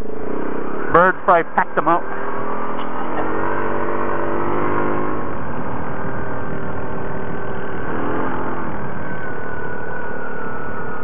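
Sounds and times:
atv engine drone: 0:00.0 - 0:11.0
rushing noise of tracks: 0:00.0 - 0:11.0.

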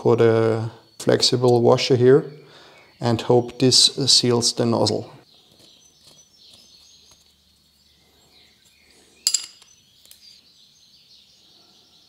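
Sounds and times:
sharp metallic clink: 0:09.2 - 0:09.7.

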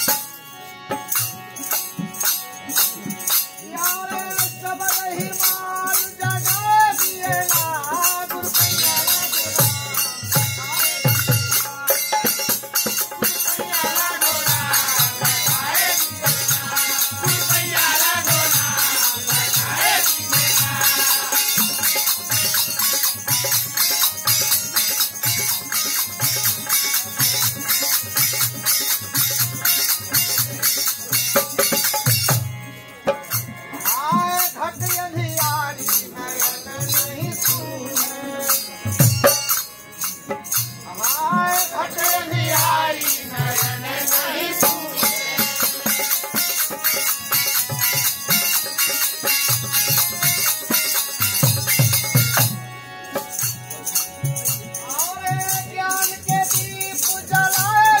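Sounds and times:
small hand cymbals clinking: 0:44.9 - 0:58.0
hand drum beats: 0:49.5 - 0:52.6.

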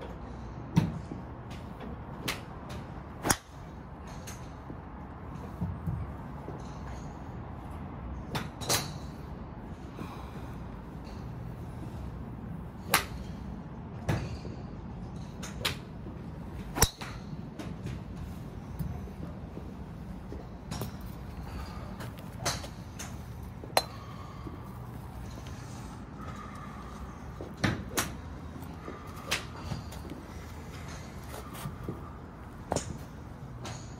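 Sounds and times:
steady background hum: 0:00.0 - 0:33.9
golf balls being struck: 0:16.7 - 0:18.0, 0:20.3 - 0:25.9.

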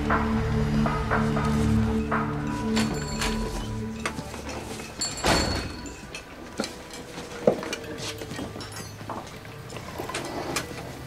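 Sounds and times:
dishes clinking: 0:02.7 - 0:10.7.

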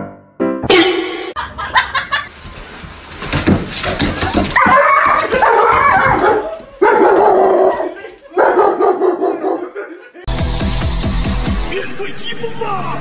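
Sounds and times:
scuffling and rustling: 0:02.2 - 0:08.5.

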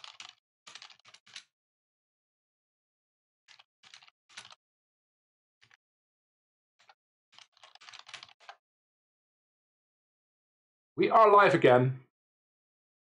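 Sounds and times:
keyboard typing: 0:00.0 - 0:01.5, 0:03.5 - 0:04.6, 0:06.8 - 0:08.6.

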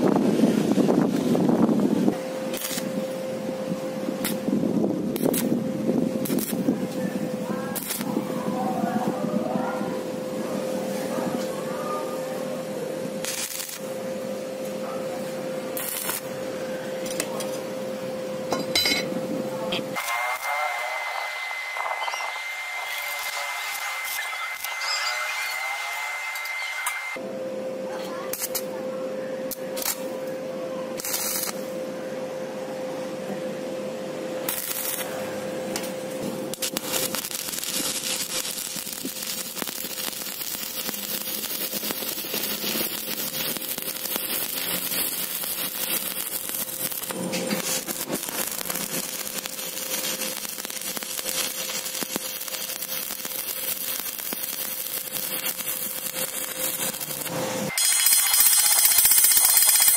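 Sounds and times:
welding arc crackling: 0:00.0 - 0:09.2, 0:13.1 - 0:14.7, 0:15.4 - 0:17.8, 0:19.7 - 0:27.2, 0:28.3 - 0:28.7, 0:29.5 - 0:30.1, 0:31.0 - 0:31.7, 0:34.4 - 0:59.9
steady hum: 0:00.0 - 0:59.6.

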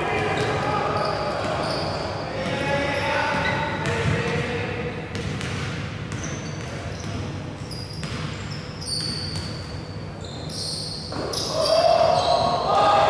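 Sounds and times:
shoe squeaks on court: 0:00.4 - 0:02.2, 0:06.1 - 0:12.6.

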